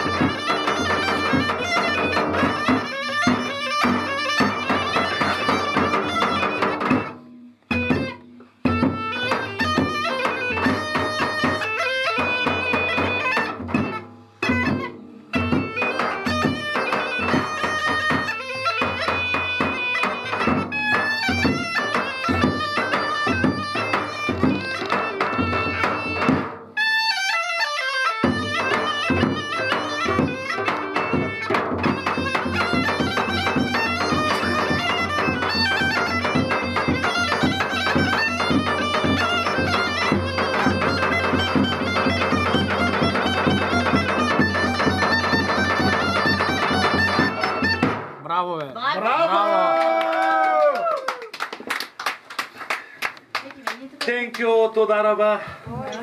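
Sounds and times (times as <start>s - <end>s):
small frame drum: 0.0s - 26.9s, 28.0s - 48.5s
bagpipe playing folk tune: 0.0s - 48.0s.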